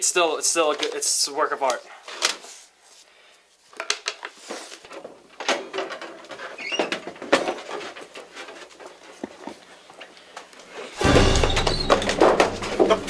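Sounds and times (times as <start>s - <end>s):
paper rustling: 0.5s - 13.0s
brief squeak: 11.4s - 12.1s.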